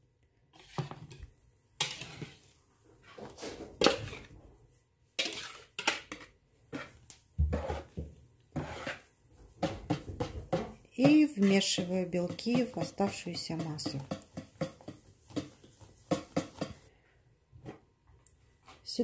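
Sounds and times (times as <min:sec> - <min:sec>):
metal whisk clattering against bowls: 0:09.6 - 0:16.9.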